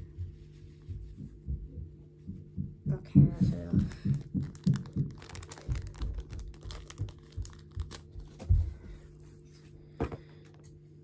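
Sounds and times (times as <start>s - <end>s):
plastic packet crinkling and tearing: 3.9s - 8.4s.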